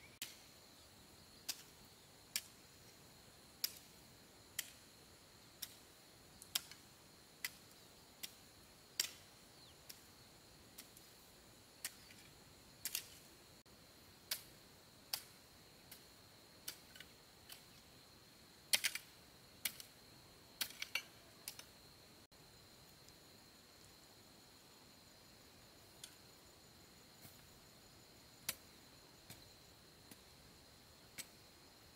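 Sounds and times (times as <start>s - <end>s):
sharp clicks: 20.6s - 21.7s.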